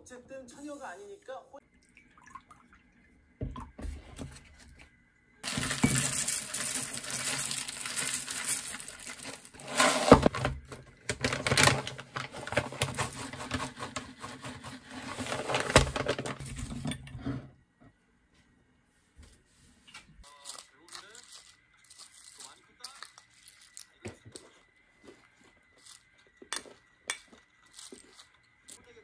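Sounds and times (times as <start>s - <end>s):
milk pouring into bowl: 1.6s - 9.6s
cereal clattering into ceramic bowl: 5.4s - 10.3s, 20.3s - 24.5s.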